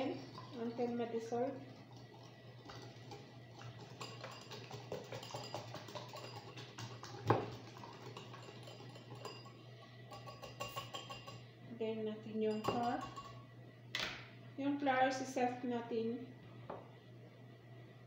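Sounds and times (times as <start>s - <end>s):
whisk clicking against glass bowl: 3.9s - 9.5s.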